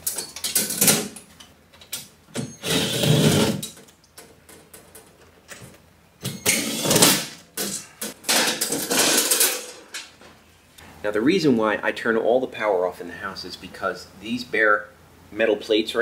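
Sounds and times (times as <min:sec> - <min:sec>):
cordless drill running: 0:02.6 - 0:03.6.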